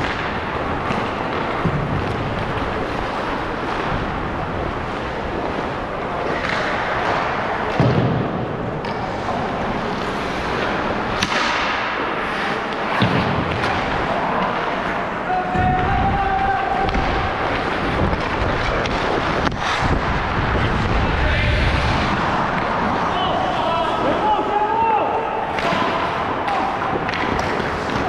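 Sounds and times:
skate blades scraping ice: 8.8 - 15.1, 16.8 - 23.6.

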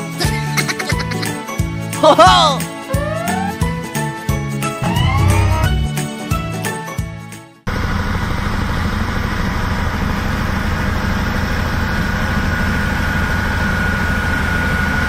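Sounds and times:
road roller diesel engine: 4.8 - 5.9, 7.7 - 15.0.

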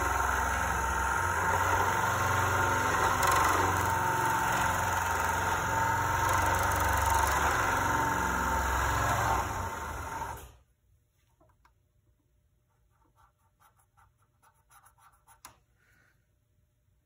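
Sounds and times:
garage door opener motor hum: 0.0 - 10.6.

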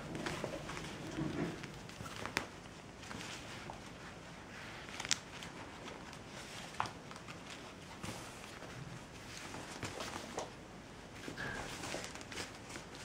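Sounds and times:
kittens scampering on wooden floor: 0.0 - 13.0.

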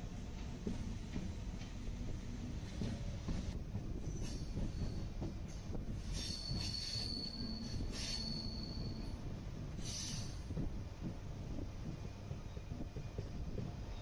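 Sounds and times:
train rumbling on rails: 0.0 - 14.0
high-pitched wheel squeal: 6.1 - 9.1.

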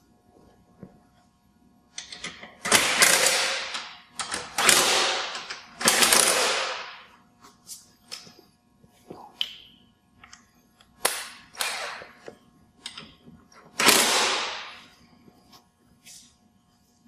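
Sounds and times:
cordless impact wrench: 2.6 - 6.9, 13.8 - 14.6.

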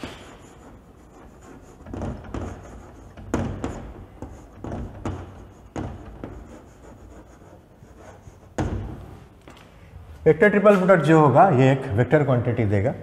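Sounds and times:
chalk tapping and scraping on blackboard: 0.0 - 9.3.

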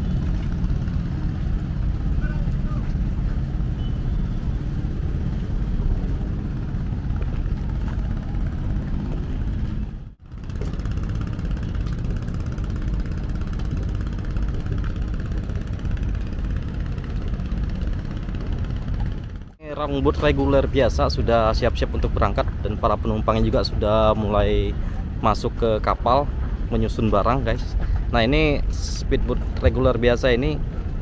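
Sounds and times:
boat engine idling: 0.0 - 31.0.

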